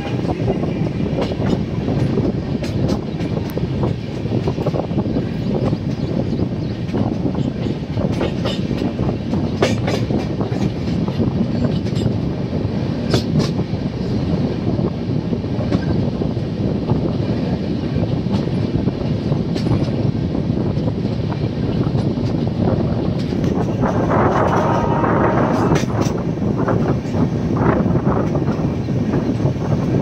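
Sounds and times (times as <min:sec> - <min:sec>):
train wheels rumbling on track: 0:00.0 - 0:30.0.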